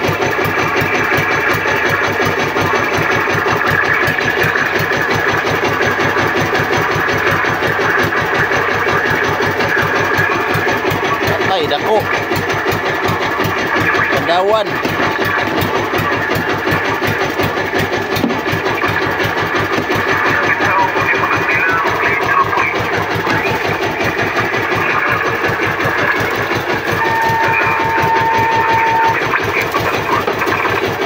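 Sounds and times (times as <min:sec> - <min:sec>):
boat engine chugging: 0:00.0 - 0:31.0
steady high tone: 0:26.9 - 0:29.5.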